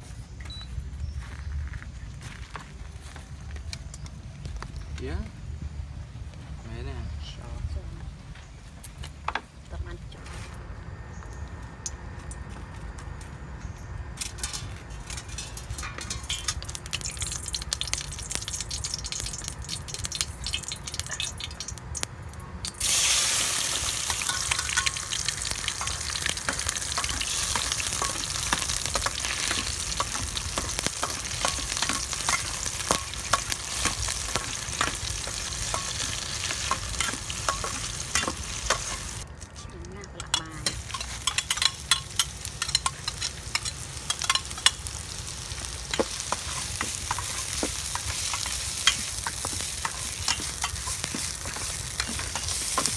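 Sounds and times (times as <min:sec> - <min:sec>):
paste sizzling in hot oil: 0:16.0 - 0:22.0, 0:22.7 - 0:39.2, 0:40.6 - 0:52.9.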